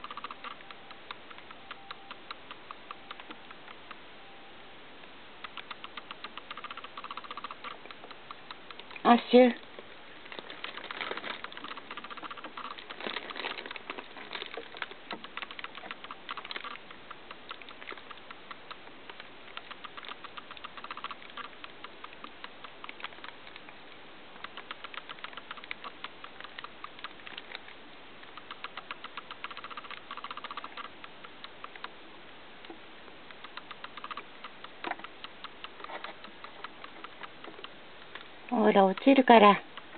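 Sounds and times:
claws clicking on plastic: 5.4s - 9.1s, 10.3s - 23.7s, 24.4s - 27.7s, 28.3s - 31.9s, 33.3s - 39.9s
hamster sniffing: 10.8s - 23.4s.

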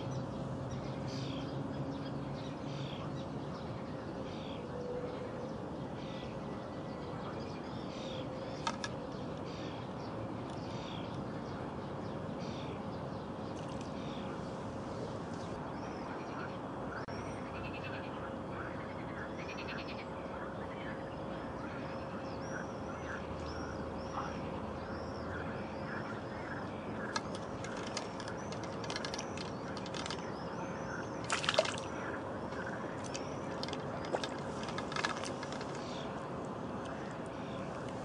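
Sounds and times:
fish splashing at water surface: 31.2s - 35.8s.

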